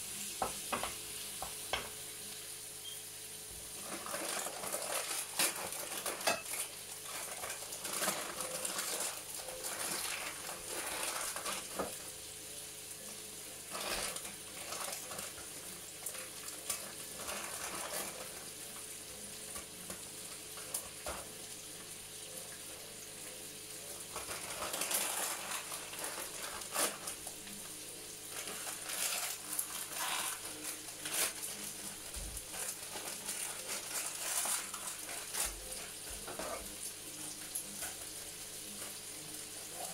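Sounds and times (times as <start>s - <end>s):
chicken sizzling in a pan: 0.0s - 39.9s
utensils and dishes clinking: 3.8s - 12.1s, 28.3s - 39.9s.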